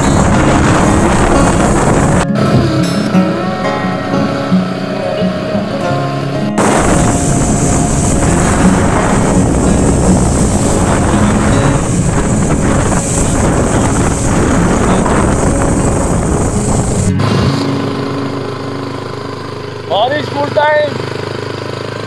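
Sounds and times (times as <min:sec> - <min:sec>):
wind roaring over microphone: 0:00.0 - 0:03.2, 0:06.6 - 0:19.9
road noise: 0:00.0 - 0:22.0.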